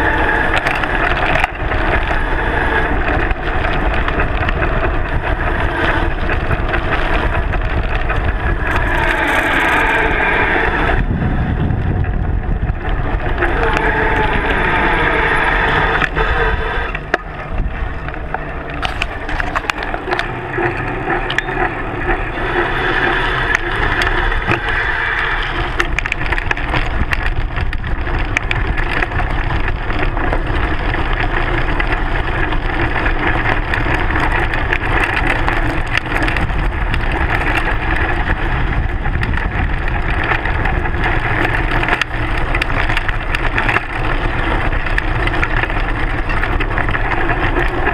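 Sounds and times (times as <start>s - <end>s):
bike tyre crunching over gravel: 0.0s - 47.9s
rush of noise: 0.0s - 47.9s
rattles and knocks on bike fork: 16.9s - 24.8s, 25.6s - 47.9s.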